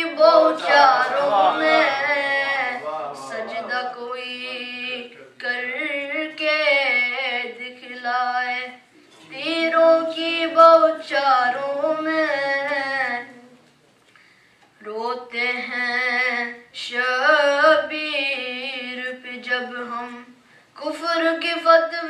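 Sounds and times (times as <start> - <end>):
boy chanting unaccompanied: 0.0 - 13.6, 14.8 - 22.0.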